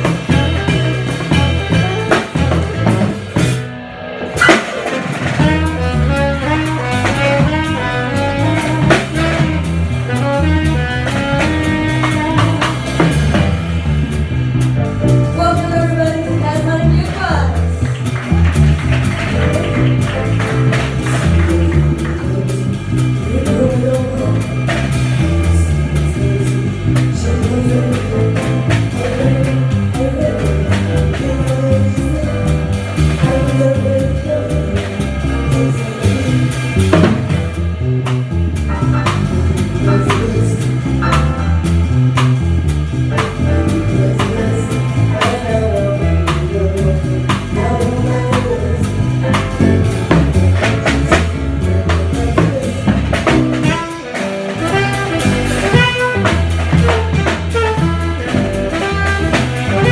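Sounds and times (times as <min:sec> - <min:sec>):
drum kit: 0:00.0 - 0:59.9
plucked double bass funk line: 0:00.0 - 0:59.9
person singing: 0:21.1 - 0:36.7, 0:43.3 - 0:57.5.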